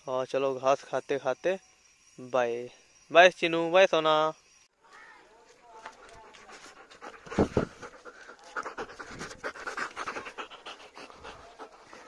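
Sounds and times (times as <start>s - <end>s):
dog panting: 5.9s - 12.0s.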